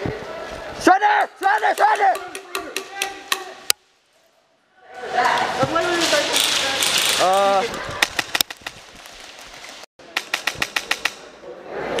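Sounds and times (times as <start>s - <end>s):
airsoft rifle shots: 10.0s - 11.3s.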